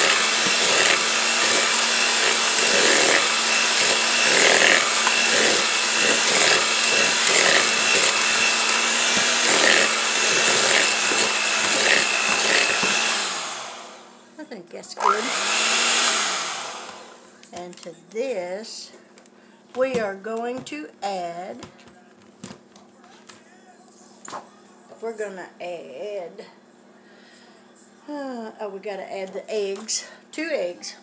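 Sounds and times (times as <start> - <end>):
electric hand mixer running: 0.0 - 14.2, 15.0 - 17.4.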